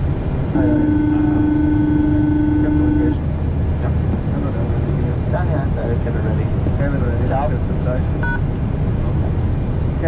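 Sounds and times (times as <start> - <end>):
airflow and engine rush: 0.0 - 10.0
steady electronic tone: 0.5 - 3.2.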